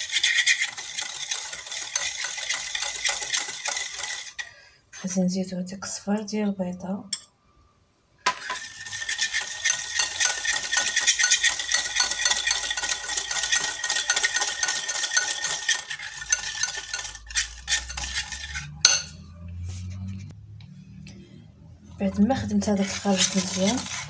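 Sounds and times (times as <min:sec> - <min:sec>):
whisk clicking against bowl: 0:00.0 - 0:04.4, 0:08.5 - 0:19.0, 0:22.7 - 0:24.0.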